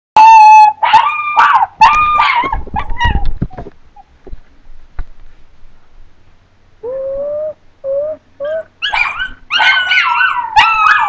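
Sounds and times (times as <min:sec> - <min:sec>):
dog howling and whimpering: 0:00.2 - 0:03.3, 0:06.8 - 0:11.0.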